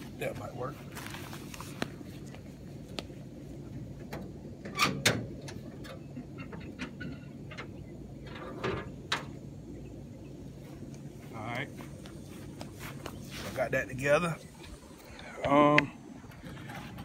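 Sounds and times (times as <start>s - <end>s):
hood unlatching clunks: 4.0s - 9.5s.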